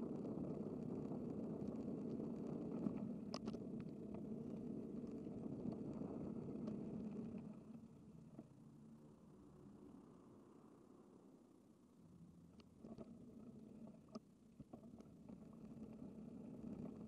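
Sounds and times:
faint clicks: 0:00.1 - 0:08.6, 0:12.5 - 0:17.0.

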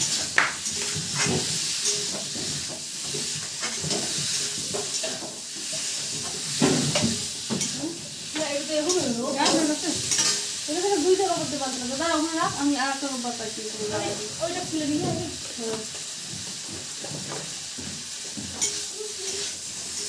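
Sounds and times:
metal spatula scraping pan: 0:00.0 - 0:07.8, 0:08.4 - 0:12.3, 0:18.5 - 0:20.0
potatoes sizzling in hot oil: 0:00.0 - 0:20.0.

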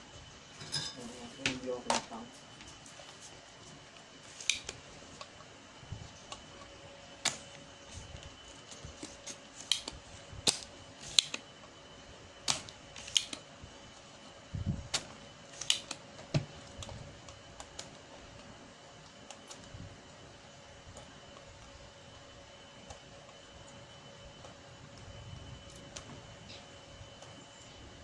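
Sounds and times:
desoldering pump clicks and snaps: 0:04.4 - 0:05.3, 0:09.0 - 0:11.5, 0:12.4 - 0:13.4, 0:14.9 - 0:16.0.

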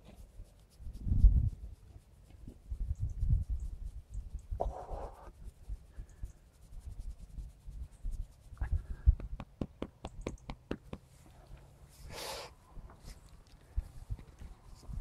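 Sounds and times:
hand scratching coarse fur: 0:00.0 - 0:13.3
short breathy hiss: 0:12.0 - 0:12.6.

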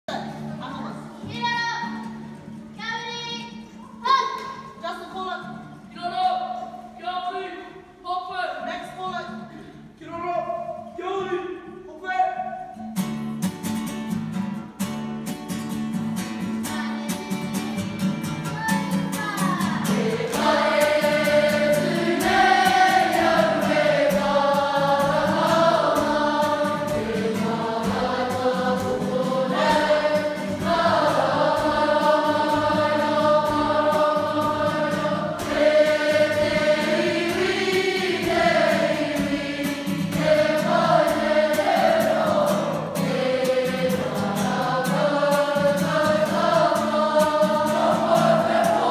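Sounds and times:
group of young voices singing: 0:19.4 - 0:48.9.

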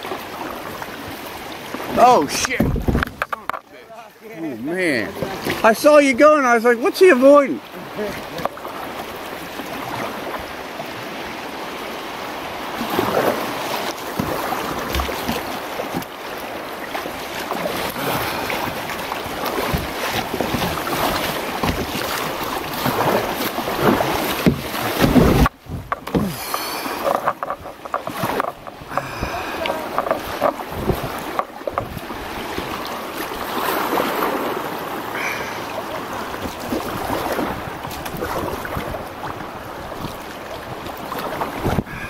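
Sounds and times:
paddle splashing in water: 0:00.0 - 0:42.0
wind buffeting microphone: 0:02.5 - 0:03.2, 0:28.7 - 0:32.6.

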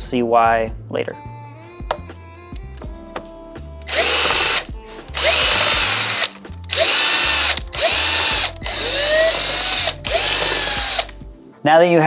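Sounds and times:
cordless drill whining: 0:03.8 - 0:11.2.

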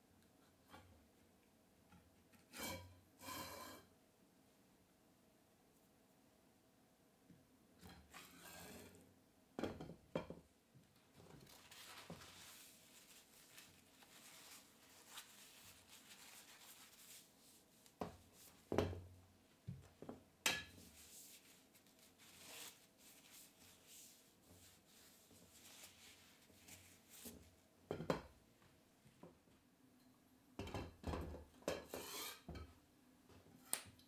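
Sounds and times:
tissue rubbing on steel rods: 0:11.4 - 0:18.7, 0:20.8 - 0:27.5.

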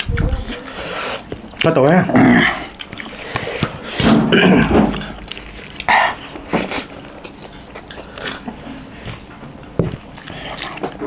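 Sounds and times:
person chewing food: 0:00.0 - 0:11.0.

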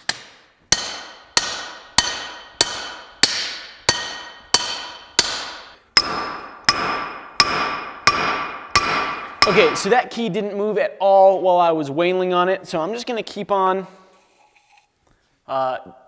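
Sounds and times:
hammer ringing on steel bar: 0:00.7 - 0:09.9.

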